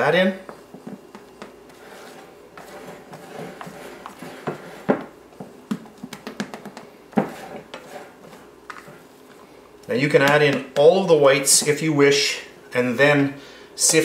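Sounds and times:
spatula scraping a glass bowl: 1.7s - 5.0s, 7.2s - 9.0s.

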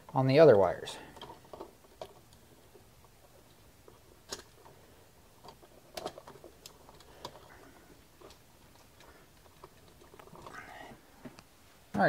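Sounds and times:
small clicks and knocks: 1.1s - 10.6s.

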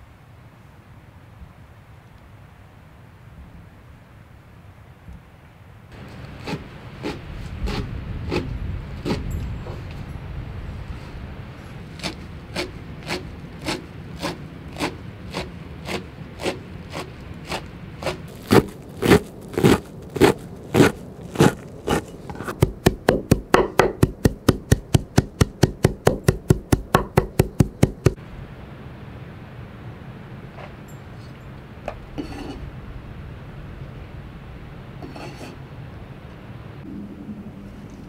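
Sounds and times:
knife chopping on wooden board: 12.0s - 28.2s.

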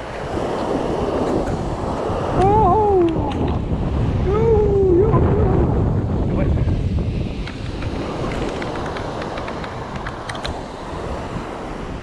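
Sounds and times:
surf breaking on sand: 0.0s - 12.0s
wind buffeting microphone: 0.0s - 12.0s
wavering voice-like tone: 2.4s - 3.5s, 4.2s - 5.8s.

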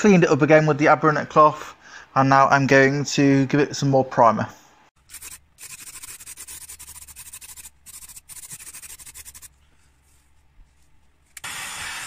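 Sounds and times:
aerosol can spraying: 5.1s - 9.5s
heat gun blowing: 11.4s - 12.0s.

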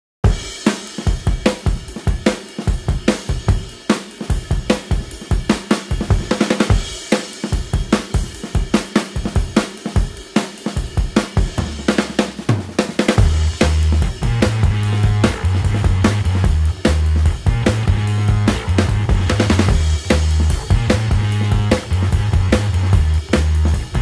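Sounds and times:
drum kit beat: 0.2s - 24.0s.

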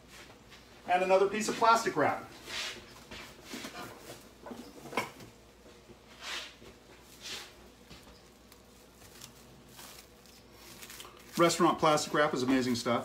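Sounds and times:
plastic wrap crinkling: 7.0s - 13.0s.

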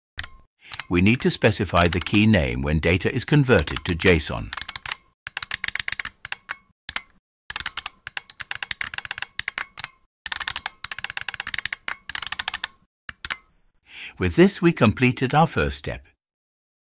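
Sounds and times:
fast typing on keyboard: 0.2s - 2.3s, 3.6s - 13.4s.

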